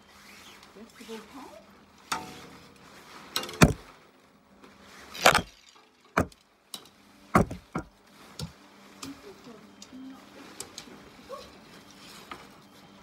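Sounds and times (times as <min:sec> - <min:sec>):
tent pole knocking: 0:03.6 - 0:03.8, 0:06.2 - 0:06.4, 0:07.4 - 0:08.0.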